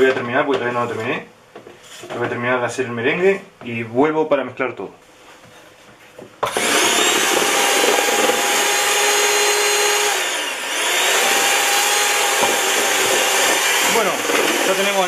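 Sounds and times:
electric hand mixer running: 6.4s - 15.0s.

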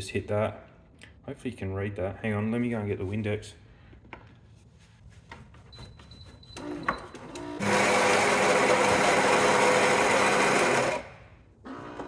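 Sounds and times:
coffee machine buzzing and hissing: 6.6s - 12.0s.

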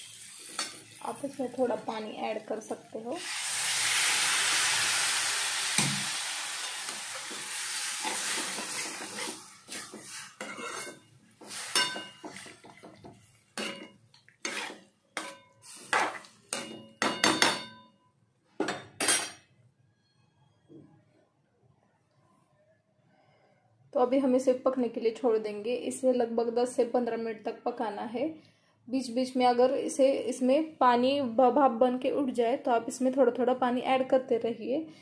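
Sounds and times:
water sizzling in hot oil: 0.0s - 2.0s, 2.6s - 12.7s
metal spoon scraping pan: 8.0s - 12.9s, 13.6s - 16.7s.

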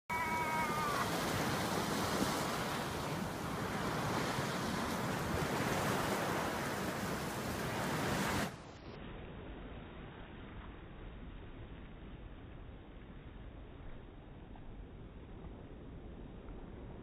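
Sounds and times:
surf washing over rocks: 0.1s - 12.2s
wind buffeting microphone: 0.2s - 8.6s.

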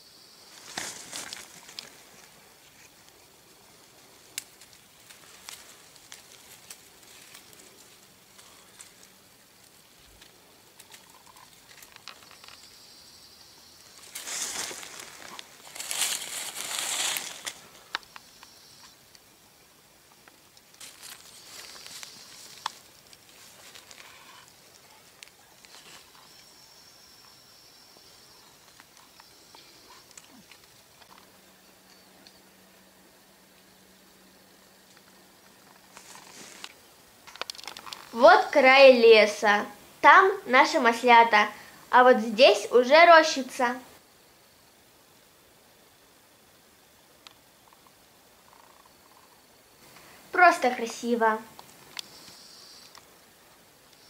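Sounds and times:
dry leaves and twigs rustling: 0.5s - 12.9s, 13.6s - 19.3s, 20.1s - 27.4s, 34.8s - 39.6s
small twig snaps: 4.3s - 7.6s.

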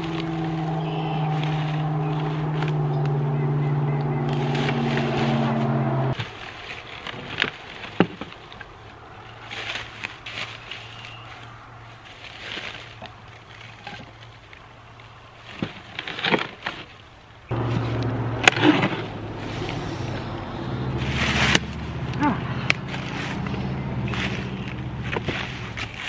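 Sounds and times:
steady low hum: 17.5s - 25.1s.

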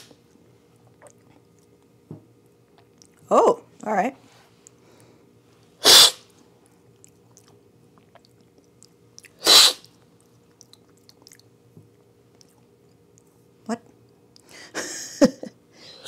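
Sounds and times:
loud slurps of coffee: 5.8s - 6.2s, 9.4s - 9.8s.

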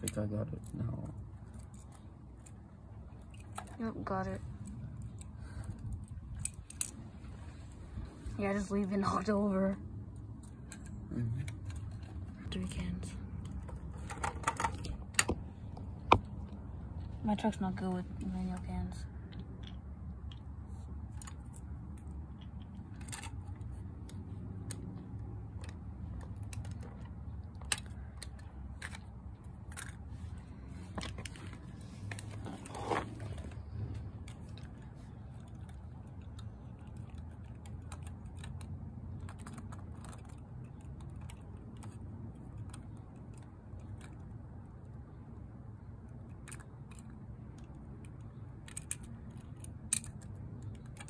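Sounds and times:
small plastic toys clicking: 0.0s - 7.0s, 19.3s - 51.0s
toy scraping on concrete: 25.8s - 44.3s.

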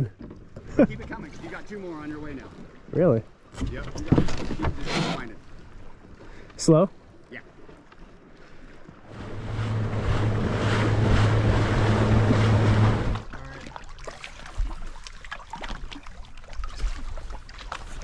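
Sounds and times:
rushing water: 0.0s - 18.0s
soft water sounds: 0.0s - 18.0s
low motor hum: 9.0s - 13.6s.

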